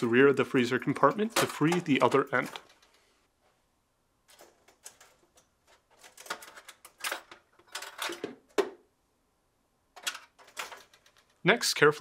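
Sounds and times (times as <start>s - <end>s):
metal clicks rattles and scrapes: 1.0s - 3.0s, 4.3s - 8.5s, 10.0s - 11.4s.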